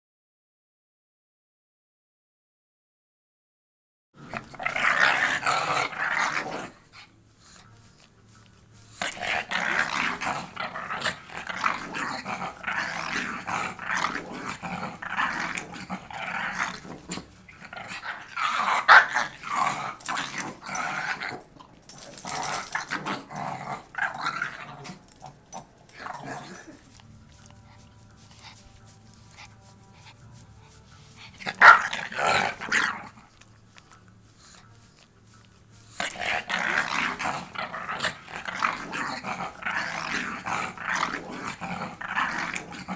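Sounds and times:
small dog growling: 4.2 - 6.8, 9.0 - 27.8, 31.2 - 33.4, 36.0 - 42.9.

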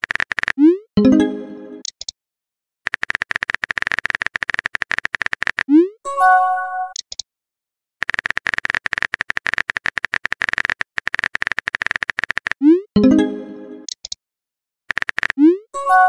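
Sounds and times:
keyboard typing clicks: 0.0 - 2.2, 2.9 - 5.9, 6.8 - 7.2, 8.0 - 14.2, 14.9 - 15.6
message chime: 1.0 - 1.8, 6.1 - 7.0, 13.0 - 13.9.

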